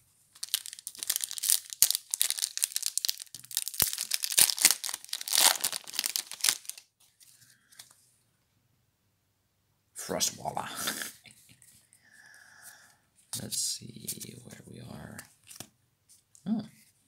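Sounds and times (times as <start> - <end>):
foil wrapper tearing and crinkling: 0.4 - 6.8.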